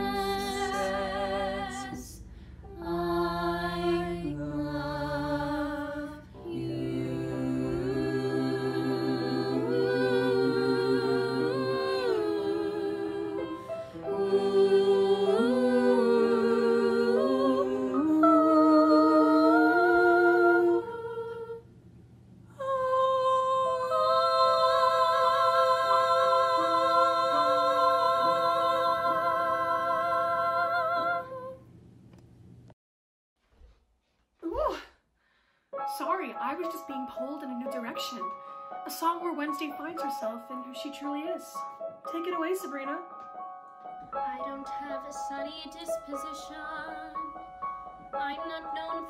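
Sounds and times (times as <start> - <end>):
voices singing in harmony: 0.0 - 21.7, 22.6 - 31.7.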